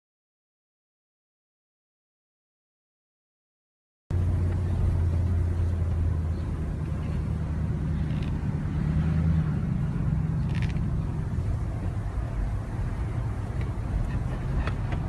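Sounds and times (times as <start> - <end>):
car engine and road noise: 4.1 - 15.0.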